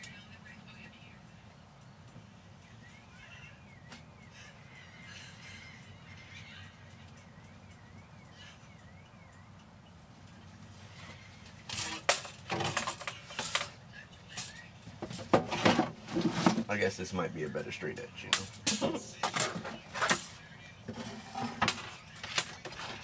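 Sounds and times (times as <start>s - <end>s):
tools knocking and clattering: 11.7s - 13.8s, 18.3s - 23.0s.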